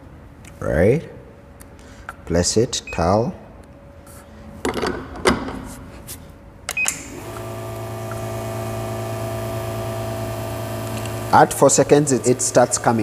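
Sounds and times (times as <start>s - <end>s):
espresso machine pump humming: 7.1s - 13.0s.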